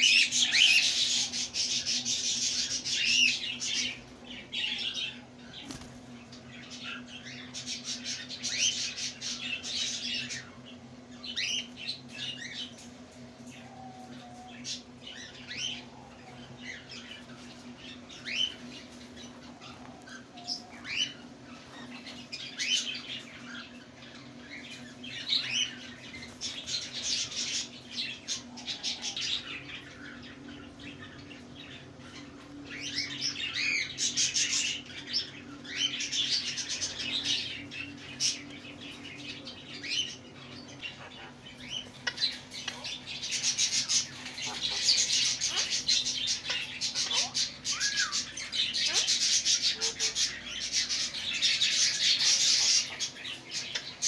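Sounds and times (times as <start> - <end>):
steady low hum: 0.0 - 54.0
cockatiels chirping and squawking: 11.2 - 54.0.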